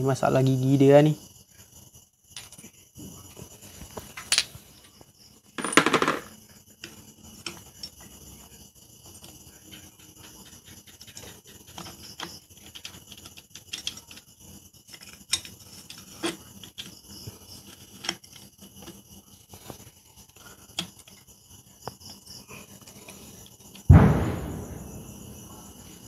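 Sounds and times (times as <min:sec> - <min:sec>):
metal clutch parts clicking: 0:10.9 - 0:14.3.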